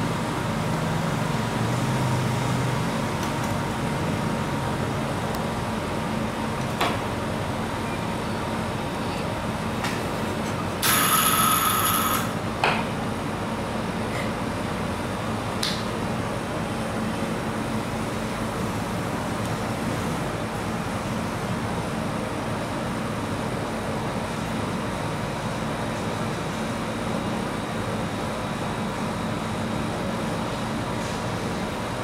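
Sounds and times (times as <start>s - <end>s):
ice cream machine whirring: 10.3s - 12.6s.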